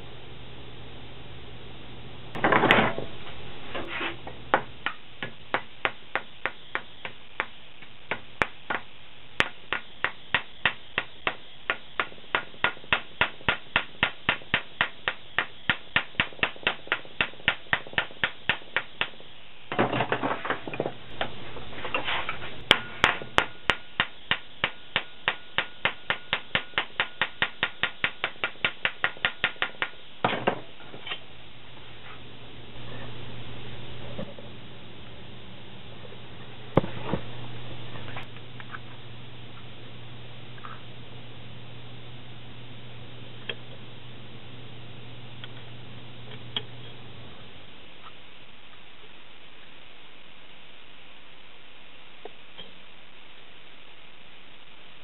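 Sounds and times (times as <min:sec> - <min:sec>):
hammer tapping sheet metal: 0:04.5 - 0:21.3, 0:22.7 - 0:30.6.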